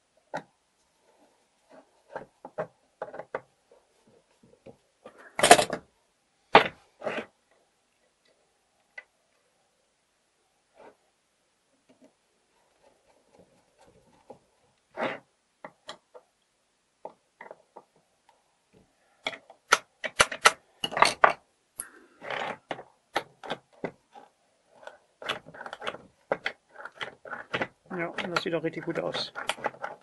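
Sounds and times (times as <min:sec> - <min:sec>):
screw scraping and clicking: 0:22.2 - 0:28.5, 0:29.3 - 0:30.0.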